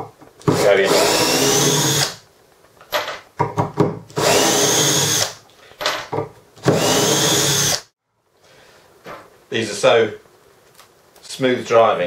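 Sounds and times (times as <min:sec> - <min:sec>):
drill driving screws into wood: 0:00.4 - 0:02.2, 0:04.1 - 0:05.4, 0:06.6 - 0:07.9.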